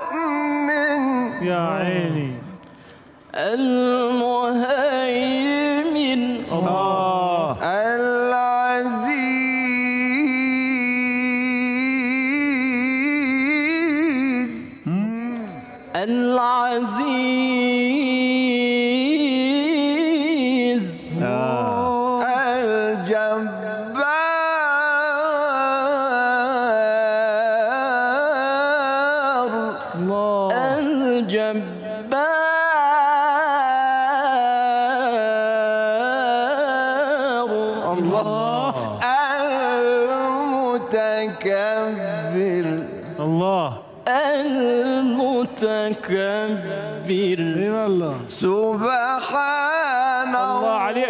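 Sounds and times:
man chanting melodically: 0:00.0 - 0:51.0
man breathing: 0:02.6 - 0:03.3.

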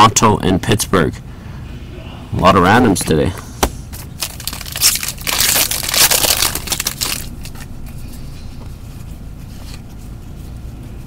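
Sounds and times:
cards shuffling and handling: 0:02.9 - 0:10.8
trading card packaging crinkling: 0:03.9 - 0:08.0.

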